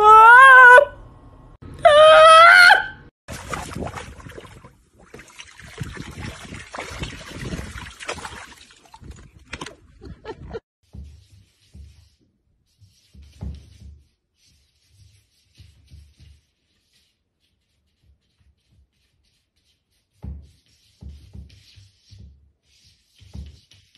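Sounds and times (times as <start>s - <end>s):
dog splashing in water: 3.3s - 9.8s.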